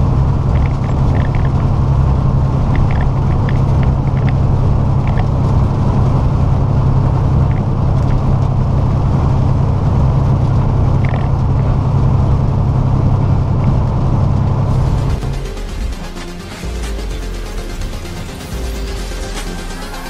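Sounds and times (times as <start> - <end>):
road noise: 0.0 - 20.0
truck diesel engine drone: 0.0 - 20.0.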